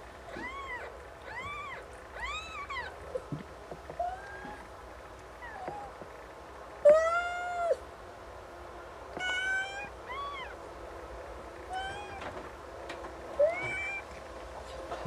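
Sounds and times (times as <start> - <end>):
cat meowing: 0.3 - 3.0, 4.0 - 4.7, 5.4 - 6.0, 6.8 - 7.8, 9.2 - 10.6, 11.7 - 12.4, 13.4 - 14.1.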